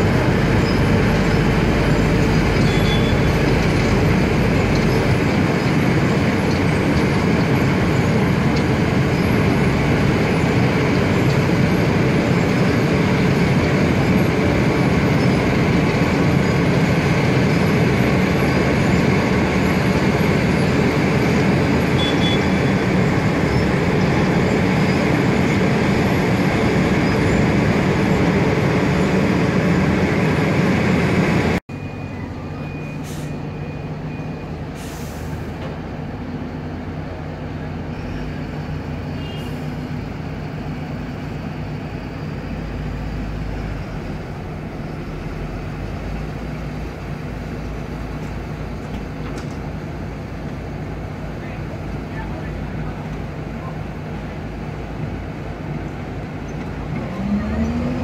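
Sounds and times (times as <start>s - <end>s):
heavy diesel paving machinery: 0.0s - 58.0s
steady engine hum: 0.0s - 58.0s.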